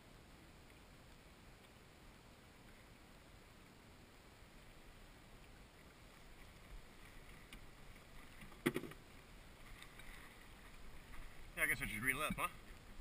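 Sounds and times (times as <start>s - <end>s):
water lapping around kayak: 0.0s - 13.0s
light ticks: 0.6s - 1.8s.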